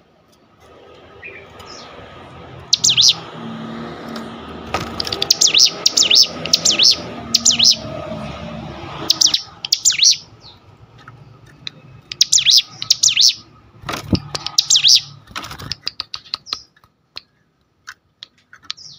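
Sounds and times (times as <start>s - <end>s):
bird chirping: 1.2s - 2.0s, 2.6s - 3.3s, 4.8s - 8.1s, 8.9s - 17.4s, 18.2s - 18.9s
bird quick ticks: 14.2s - 15.0s.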